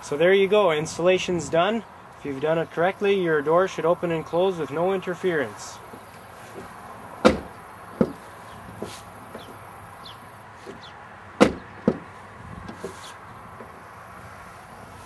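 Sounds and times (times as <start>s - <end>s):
truck door shutting and opening: 5.9s - 13.9s.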